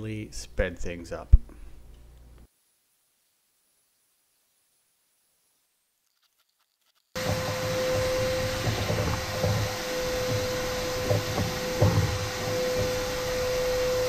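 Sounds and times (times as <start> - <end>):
hose bumping: 7.2 - 14.0
shop vacuum sucking sawdust: 7.2 - 14.0.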